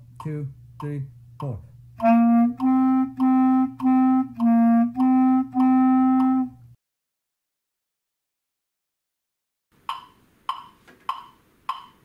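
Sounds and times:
clarinet playing low notes: 2.0 - 6.8.

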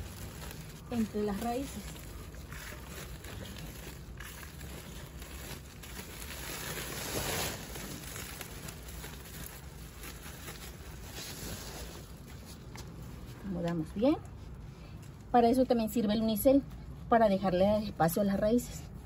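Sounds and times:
plastic sack rustling and crinkling: 0.0 - 13.6.

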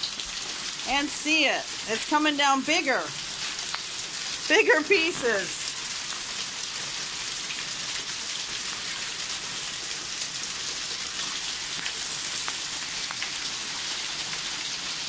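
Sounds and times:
hail pellets ticking: 0.0 - 6.3, 11.1 - 14.3
heavy rain on pavement: 0.0 - 15.0.

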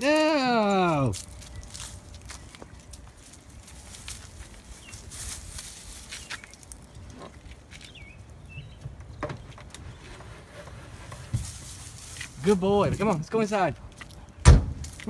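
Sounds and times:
leaves rustling under dog: 3.2 - 6.9, 11.4 - 12.6
bird chirps: 7.8 - 9.6.

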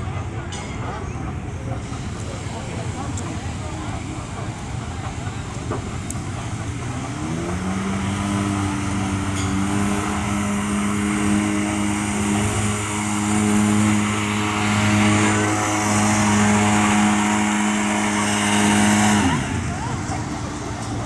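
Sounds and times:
atv engine revving: 5.5 - 21.0.

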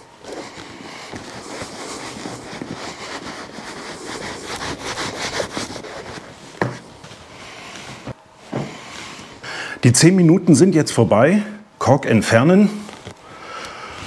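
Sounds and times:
cloth rubbing leather shoe: 0.0 - 9.4.

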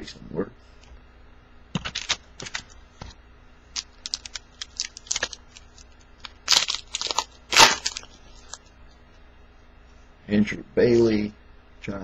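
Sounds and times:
plastic wrapper crinkling: 3.7 - 8.7.

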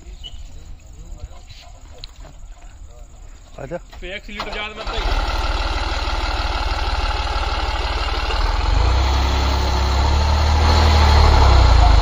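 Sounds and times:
tractor diesel engine revving: 4.4 - 12.0.

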